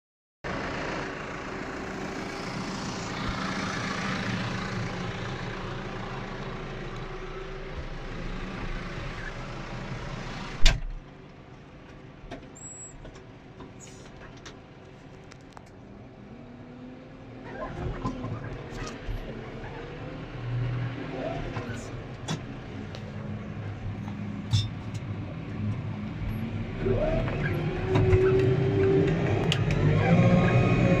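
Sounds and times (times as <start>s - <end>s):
tractor engine running: 0.5s - 15.8s.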